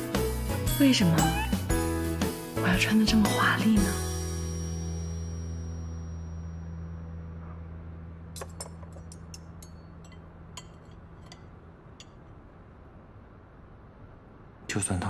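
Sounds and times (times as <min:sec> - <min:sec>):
cutlery clinking on a plate: 0:08.4 - 0:12.2.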